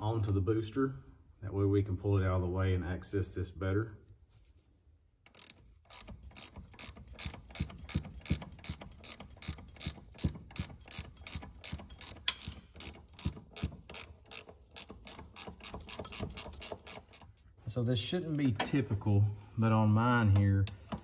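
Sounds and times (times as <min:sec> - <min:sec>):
ratchet wrench clicking: 0:05.3 - 0:17.4.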